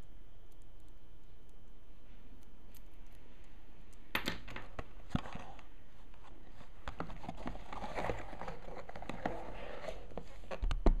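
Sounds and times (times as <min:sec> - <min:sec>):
cardboard lid scraping: 0:07.0 - 0:10.6.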